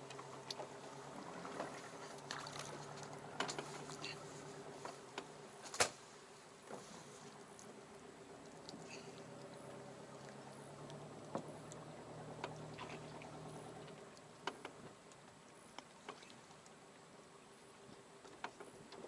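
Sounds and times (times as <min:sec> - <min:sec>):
faint low hum: 0:00.0 - 0:19.0
small sharp clicks and knocks: 0:14.4 - 0:16.4, 0:18.2 - 0:19.0.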